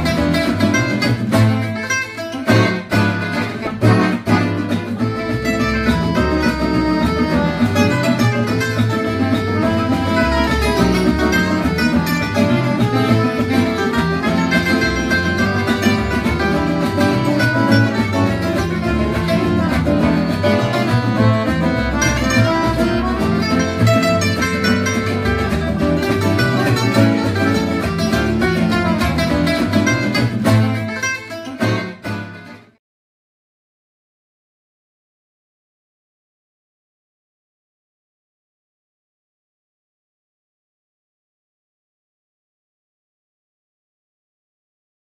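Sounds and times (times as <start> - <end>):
acoustic guitar jazz: 0.0 - 32.8.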